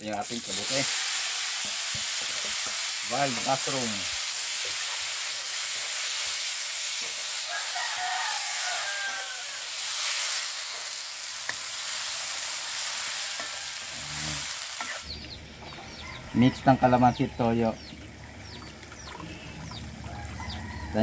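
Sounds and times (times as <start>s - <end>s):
mushrooms sizzling in oil: 0.0s - 15.2s.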